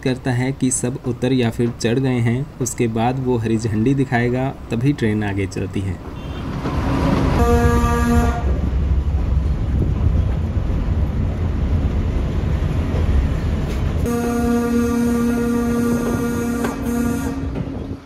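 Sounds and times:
low rumble of moving train: 0:00.0 - 0:18.0
locomotive horn: 0:06.1 - 0:08.7, 0:14.0 - 0:18.0.

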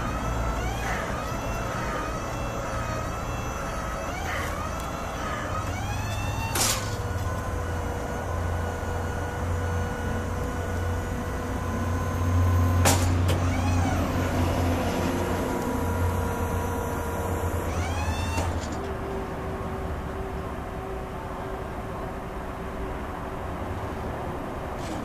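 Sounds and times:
hydraulic boom humming: 0:00.0 - 0:21.8
metal clunk: 0:06.5 - 0:07.5, 0:12.8 - 0:13.5.

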